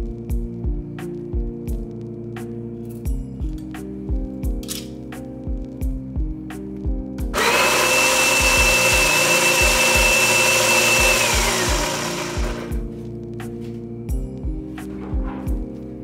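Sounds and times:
burr grinder whining: 7.4s - 12.8s.

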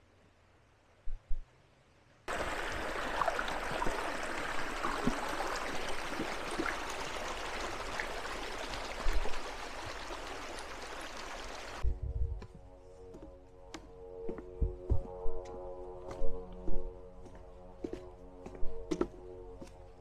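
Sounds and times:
stream splashing over stones: 2.3s - 11.8s.

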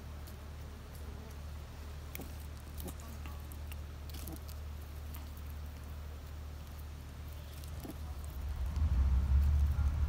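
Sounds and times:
puppy teeth gnawing wood: 2.0s - 5.9s
steady low rumble: 7.8s - 10.0s.

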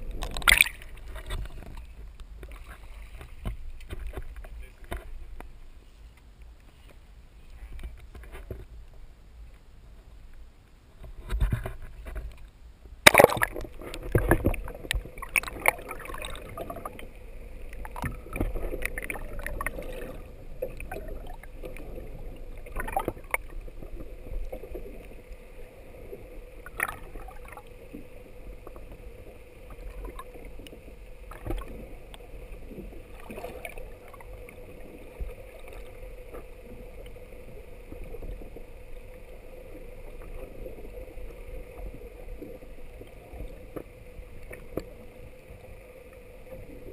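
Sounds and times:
water sloshing: 0.0s - 5.3s, 13.0s - 45.6s
underwater wash and gurgle: 0.0s - 6.0s, 10.9s - 46.9s
faint steady hum: 0.0s - 46.9s
camera splashing into water: 0.2s - 1.0s, 13.0s - 14.6s.

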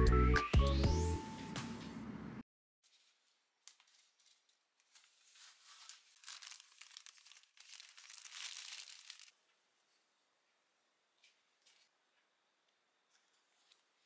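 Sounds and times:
plastic wrapping crinkling: 2.8s - 9.4s.

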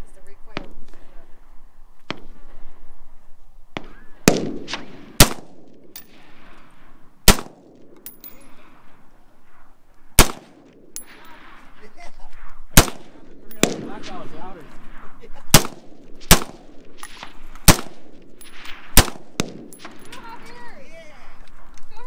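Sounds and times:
fainter gunshot cracks: 3.8s - 5.6s, 10.2s - 10.5s, 15.5s - 16.6s
rifle shots with echo: 3.8s - 9.6s, 10.2s - 11.8s, 12.4s - 20.4s.

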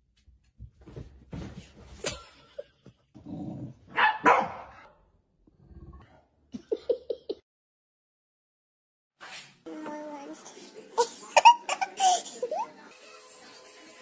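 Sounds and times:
dog barking: 3.9s - 4.9s.

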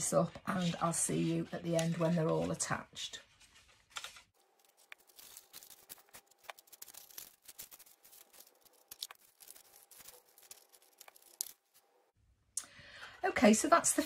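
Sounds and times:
card stock ticking and rustling: 3.2s - 11.9s.

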